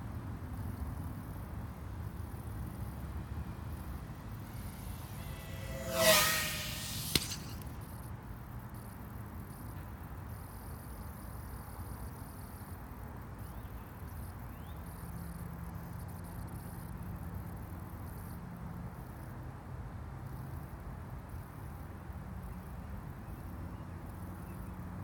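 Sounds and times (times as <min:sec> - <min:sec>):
faint hum: 0:03.5 - 0:07.7
low steady rumble: 0:03.6 - 0:07.8.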